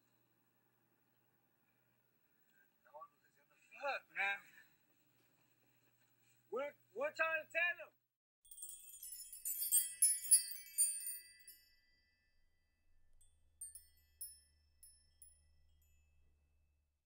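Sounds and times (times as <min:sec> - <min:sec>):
sparkle chime: 0:08.4 - 0:12.6, 0:13.2 - 0:16.3.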